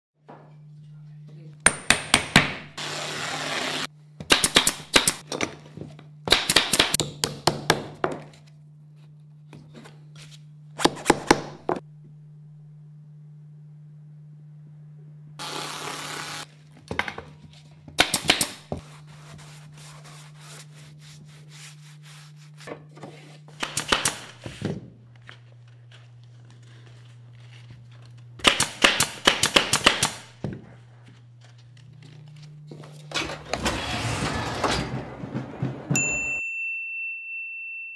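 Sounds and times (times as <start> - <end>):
steady low hum: 30.2 - 36.0.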